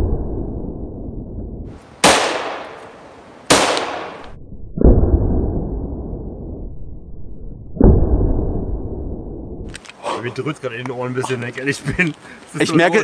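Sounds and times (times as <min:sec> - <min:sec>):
pistol shots cracking: 0:02.0 - 0:04.4.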